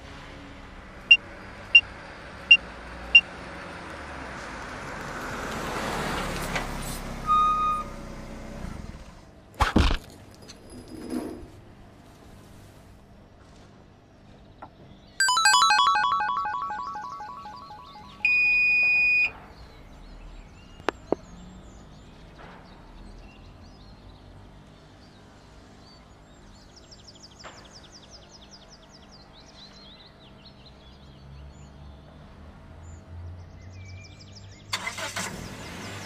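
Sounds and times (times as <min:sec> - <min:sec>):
ringing chime: 0:15.2 - 0:19.0
bird-like chirping trills: 0:15.2 - 0:19.3
electronic beep: 0:15.2 - 0:19.3.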